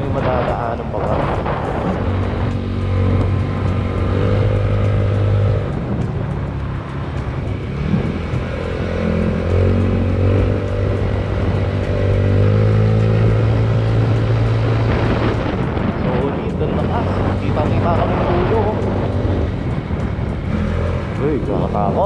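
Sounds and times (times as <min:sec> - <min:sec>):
scooter engine running: 0:00.0 - 0:22.0
wind and road noise: 0:00.0 - 0:22.0.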